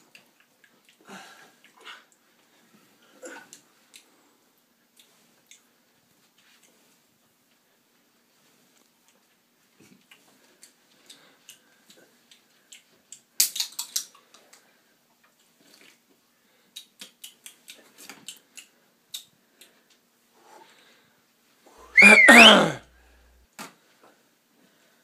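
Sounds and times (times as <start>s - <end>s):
small objects clicking: 13.1s - 14.2s.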